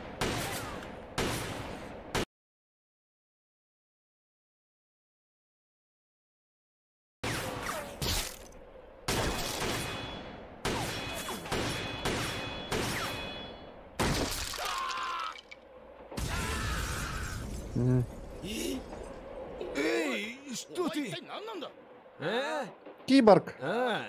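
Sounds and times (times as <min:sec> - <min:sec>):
gunshots with ringing impacts: 0:00.0 - 0:02.3, 0:07.2 - 0:14.6.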